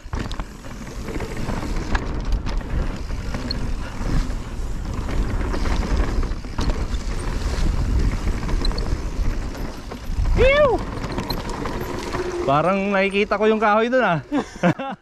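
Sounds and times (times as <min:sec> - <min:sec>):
mountain bike rolling on trail: 0:00.0 - 0:14.8
wind buffeting microphone: 0:01.3 - 0:12.5
sharp clicks and rattles: 0:04.8 - 0:13.7.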